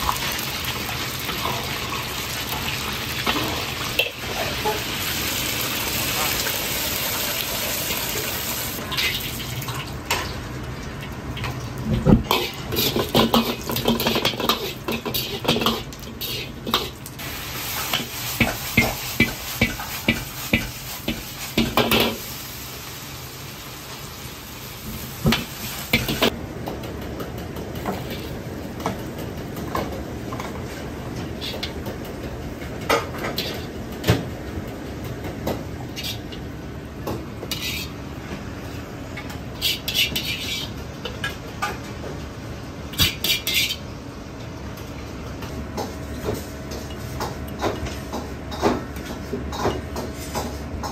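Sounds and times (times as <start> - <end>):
food sizzling: 0.0 - 10.2, 11.4 - 26.4
ladle scraping and knocking wok: 11.9 - 22.4, 25.2 - 26.4, 32.8 - 34.2, 37.4 - 38.0, 39.6 - 41.7.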